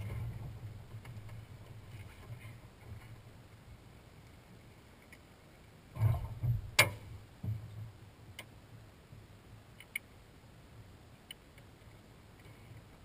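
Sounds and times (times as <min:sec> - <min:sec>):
faint low rumble: 0:00.0 - 0:13.0
light clicks and taps: 0:09.8 - 0:10.1.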